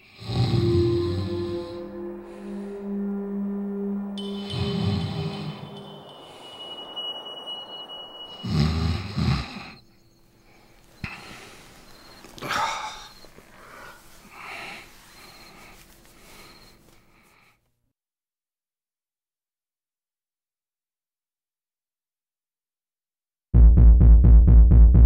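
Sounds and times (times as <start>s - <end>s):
man snoring: 0.0s - 1.8s, 8.4s - 9.8s
soft breaths: 9.4s - 17.7s.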